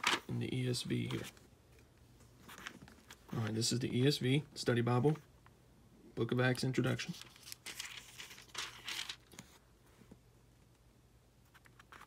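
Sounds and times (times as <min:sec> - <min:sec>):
pages turning: 0:00.0 - 0:00.3, 0:02.4 - 0:03.6, 0:06.9 - 0:09.6.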